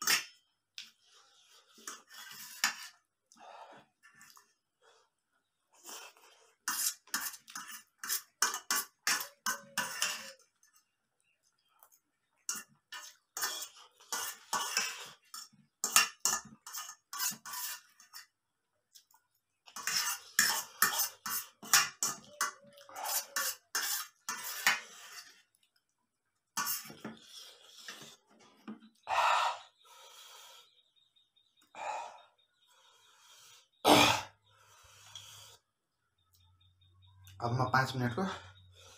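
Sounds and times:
metal fork scraping metal plate: 1.7s - 3.0s, 6.6s - 10.7s, 12.5s - 18.3s, 19.7s - 25.4s, 26.6s - 28.2s.

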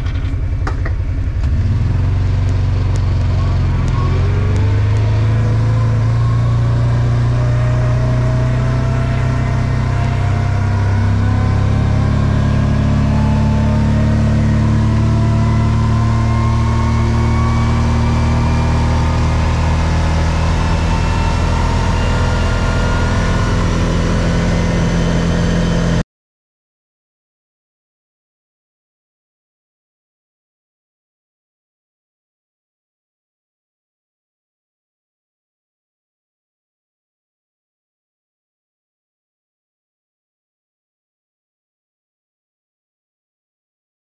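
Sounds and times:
atv engine whining: 0.0s - 26.0s.

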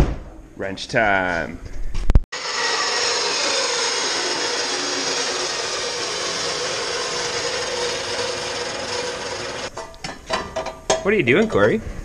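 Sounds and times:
power tool running: 2.3s - 9.7s.

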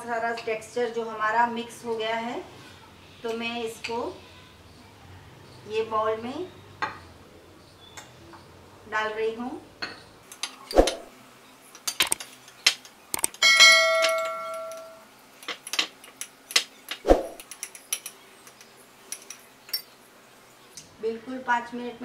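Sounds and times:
bell-like ding: 13.4s - 15.0s.

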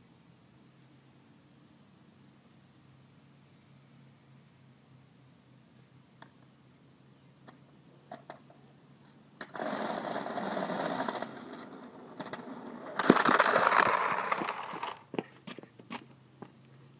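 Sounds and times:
wheels rattling on concrete: 9.4s - 16.1s.

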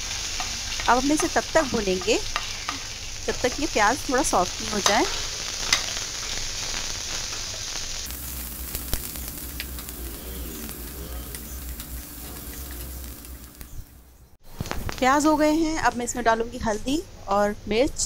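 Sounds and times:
vegetables sizzling in hot oil: 0.0s - 14.1s.

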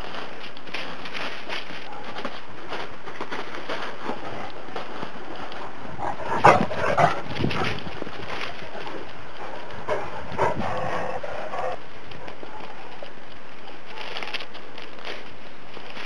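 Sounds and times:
dogs barking: 6.0s - 7.8s, 9.4s - 12.9s.

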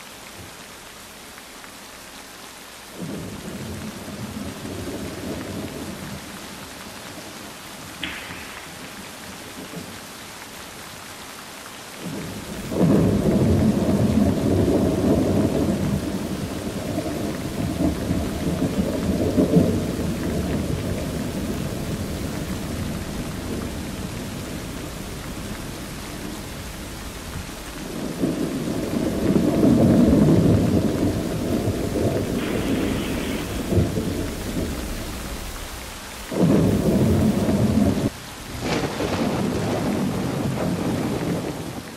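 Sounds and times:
steady rain hiss: 0.0s - 41.9s
rolling thunder: 12.0s - 41.9s.

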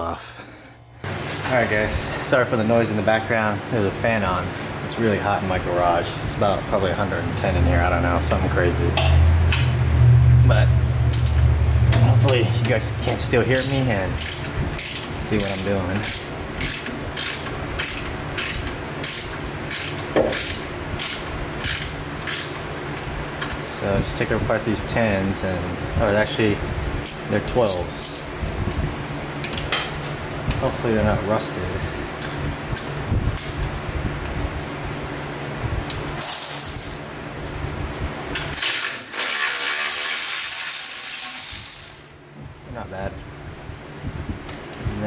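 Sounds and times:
fan humming: 0.0s - 45.0s
socket ratchet clicking: 13.1s - 22.6s, 38.6s - 42.2s.

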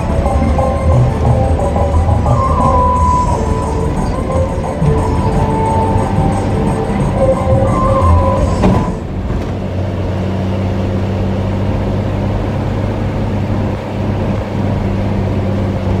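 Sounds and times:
bus multi-tone horn tune: 0.0s - 9.8s
bus engine humming: 0.0s - 16.0s.

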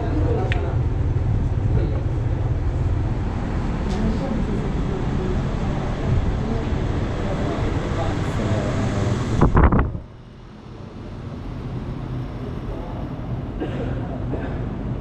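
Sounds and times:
murmuring voices: 0.0s - 9.7s.

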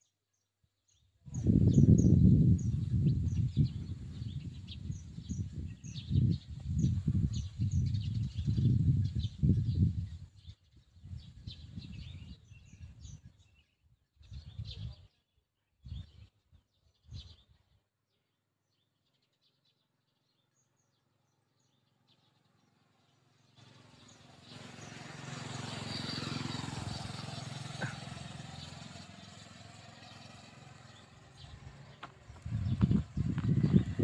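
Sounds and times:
wind buffeting microphone: 1.3s - 15.1s, 15.8s - 17.6s, 24.0s - 34.0s
motorcycle approaching: 1.4s - 9.8s, 22.9s - 34.0s
birds chirping: 18.7s - 34.0s.

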